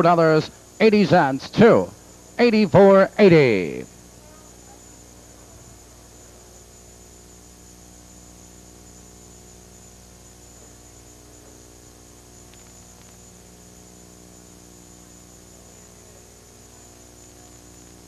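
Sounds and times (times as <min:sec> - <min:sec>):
steady electrical hum: 0:00.0 - 0:18.0
faint ticks: 0:12.4 - 0:13.4.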